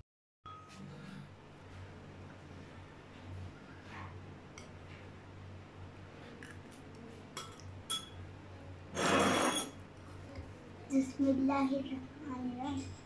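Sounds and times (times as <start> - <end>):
low steady hum: 0.5 - 13.0
fork scraping a plate: 8.9 - 9.8.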